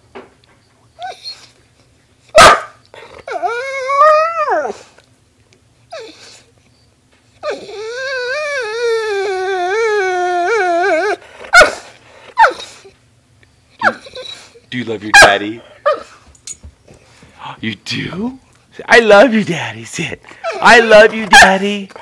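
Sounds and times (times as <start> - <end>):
dog whining: 0.9 - 1.6, 2.3 - 5.0, 5.9 - 6.6, 7.3 - 13.0, 13.7 - 16.2, 20.4 - 22.0.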